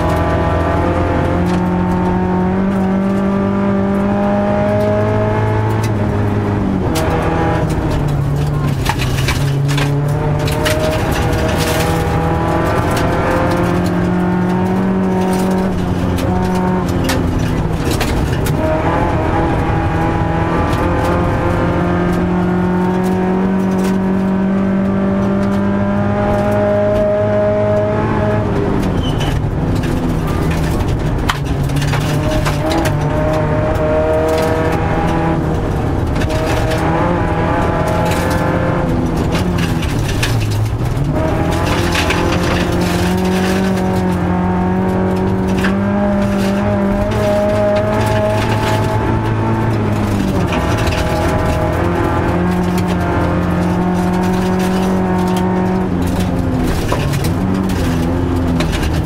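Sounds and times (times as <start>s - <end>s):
car engine at full throttle: 0.0s - 59.0s
tyre and road noise: 0.0s - 59.0s
gravel clattering against underbody: 6.9s - 19.0s, 28.8s - 59.0s.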